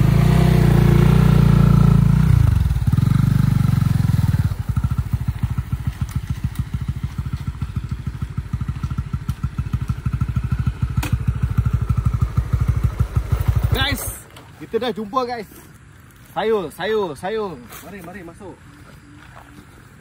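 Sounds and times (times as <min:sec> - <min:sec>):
motorcycle engine running: 0:00.0 - 0:14.2.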